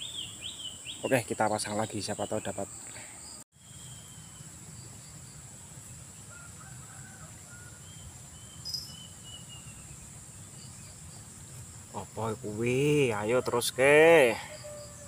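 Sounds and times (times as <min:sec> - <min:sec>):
distant bird calls: 0:00.0 - 0:15.0
insect drone: 0:00.0 - 0:15.0
rooster crowing: 0:06.3 - 0:07.9, 0:13.2 - 0:15.0.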